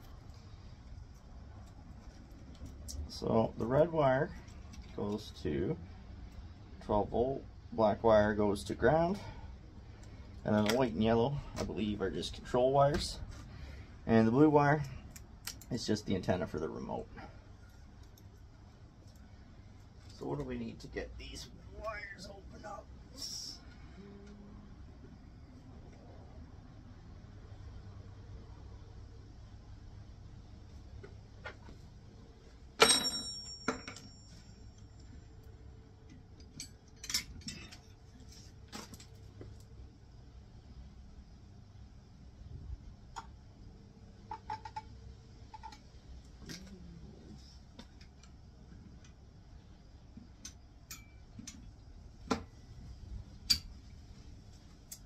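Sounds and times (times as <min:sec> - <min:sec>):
sharp metallic clank: 0:32.8 - 0:34.3
tools clicking and tapping: 0:50.4 - 0:51.7, 0:53.4 - 0:53.8.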